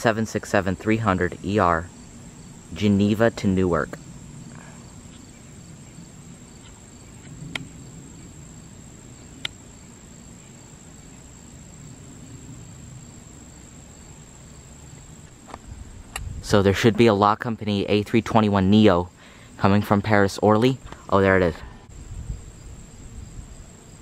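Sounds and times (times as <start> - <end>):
jet airliner rumble overhead: 0.0 - 9.4, 11.7 - 14.4
high insect trill: 0.0 - 24.0.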